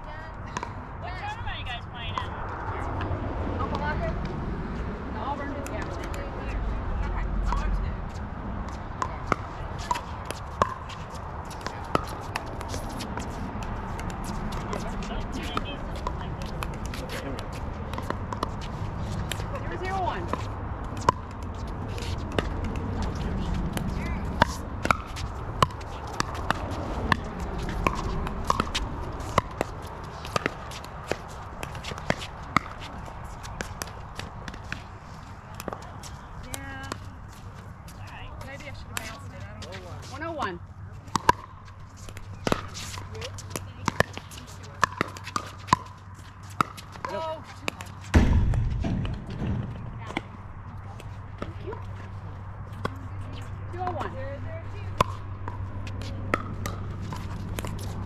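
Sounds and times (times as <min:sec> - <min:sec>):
shoes scuffing on court: 0:09.3 - 0:40.2.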